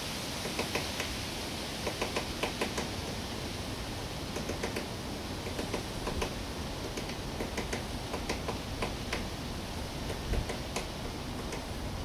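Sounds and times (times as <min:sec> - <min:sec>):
steady hiss: 0:00.0 - 0:12.0
woodpecker tapping on wood: 0:00.4 - 0:01.2, 0:01.8 - 0:02.9, 0:04.3 - 0:09.3, 0:10.0 - 0:11.7.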